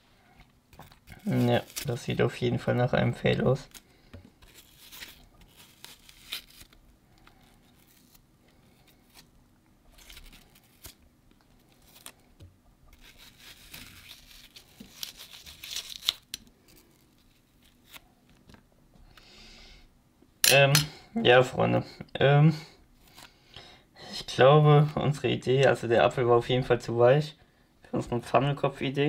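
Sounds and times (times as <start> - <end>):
apple flesh being scraped: 0.8 - 2.2, 12.9 - 16.2.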